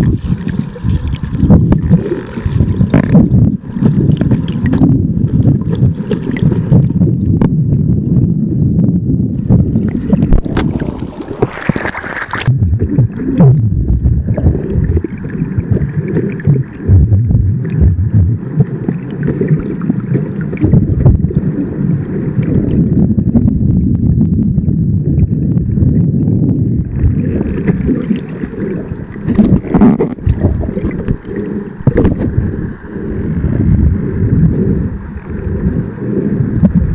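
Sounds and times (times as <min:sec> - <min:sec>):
wind buffeting microphone: 0:00.0 - 0:36.9
water washing: 0:09.5 - 0:23.7, 0:26.8 - 0:36.9.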